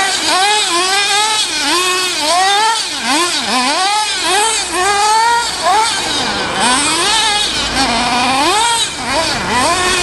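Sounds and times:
small engine revving: 0:00.0 - 0:10.0.

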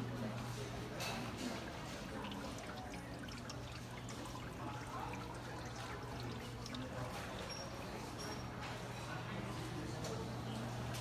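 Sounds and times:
small water drips: 0:00.9 - 0:08.6
water sprinkling and trickling: 0:01.4 - 0:08.4.

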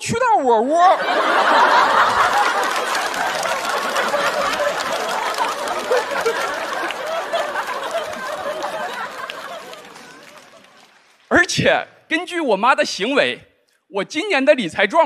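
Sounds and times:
audience laughing: 0:00.8 - 0:11.0
audience clapping: 0:01.1 - 0:11.5.

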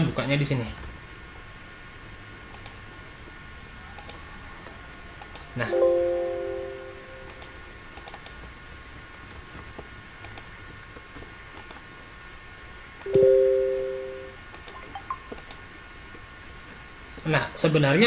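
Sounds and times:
mouse and keyboard clicks: 0:02.5 - 0:02.8, 0:07.2 - 0:08.4
two-tone notification chime: 0:05.7 - 0:07.3, 0:13.1 - 0:15.2.

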